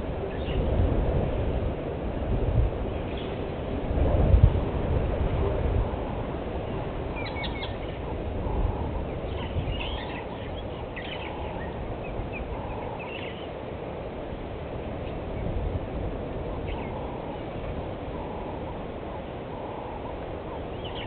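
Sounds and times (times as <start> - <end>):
low rumbling background noise: 0.0 - 21.0
birds chirping: 6.6 - 13.9, 16.4 - 21.0.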